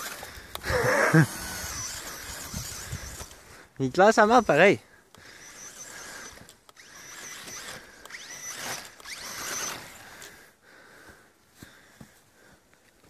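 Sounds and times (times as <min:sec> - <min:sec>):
electric motor whining: 0:00.0 - 0:10.4.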